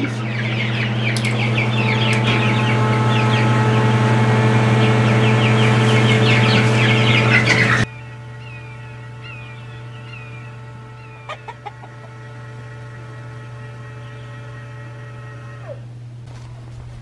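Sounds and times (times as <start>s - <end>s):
chicks peeping: 0.0s - 12.4s
motor whining: 0.0s - 16.2s
low hum: 0.0s - 17.0s.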